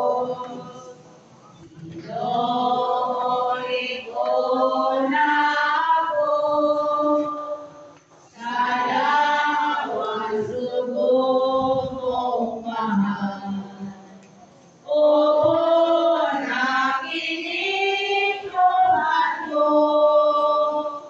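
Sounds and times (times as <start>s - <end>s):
voices singing a hymn: 0.0s - 21.0s.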